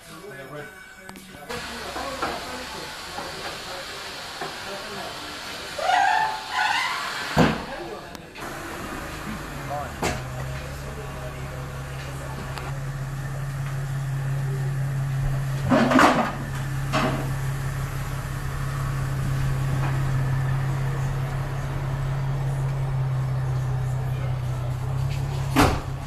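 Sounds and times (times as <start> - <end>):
car engine idling: 1.4 - 26.0
short loud exhaust bursts: 1.5 - 7.6.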